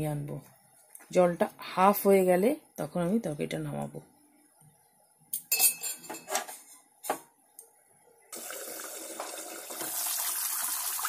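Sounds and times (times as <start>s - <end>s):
curry boiling with steady hiss: 7.9s - 11.0s.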